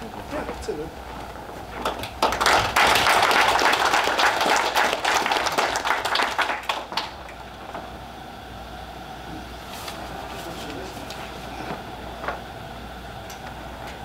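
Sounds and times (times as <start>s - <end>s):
audience applauding: 1.8s - 7.5s.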